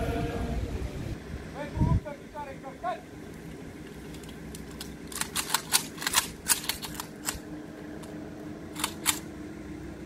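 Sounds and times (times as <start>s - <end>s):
metallic rifle clicks: 4.1s - 7.4s, 8.7s - 9.3s.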